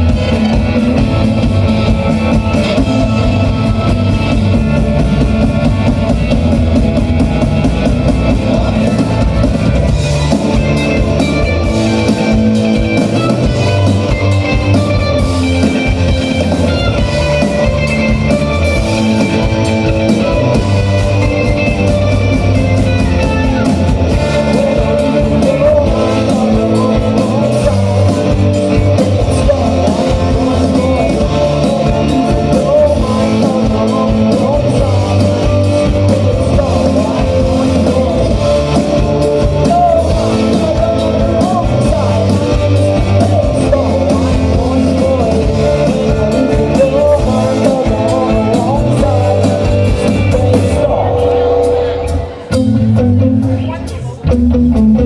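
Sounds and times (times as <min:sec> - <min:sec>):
lead singer: 0:00.0 - 0:55.0
rock band playing live: 0:00.0 - 0:55.0.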